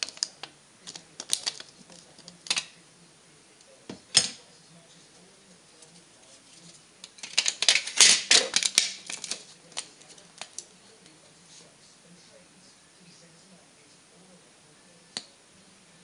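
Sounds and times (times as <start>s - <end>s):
aluminium can pieces clicking: 0.0s - 2.7s, 7.2s - 10.6s.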